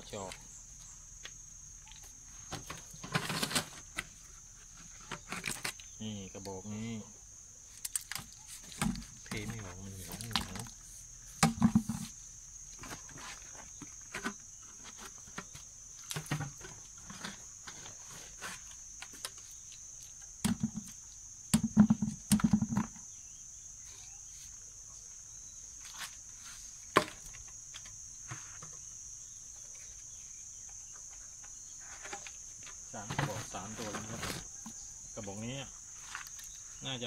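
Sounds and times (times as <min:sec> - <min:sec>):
plastic trap knocking on bucket: 0:11.4 - 0:12.1, 0:21.6 - 0:23.0.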